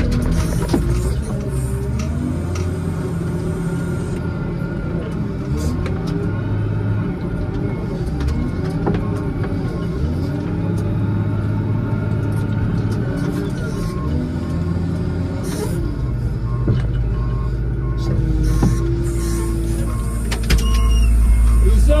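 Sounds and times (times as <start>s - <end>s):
diesel engine running under load: 0.0s - 22.0s.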